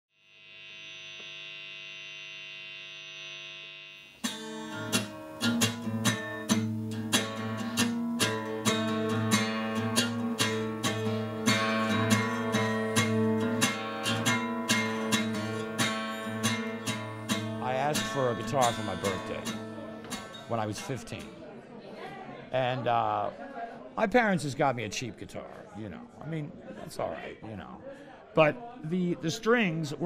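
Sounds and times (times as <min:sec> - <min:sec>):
acoustic guitar strumming: 0:04.2 - 0:21.3.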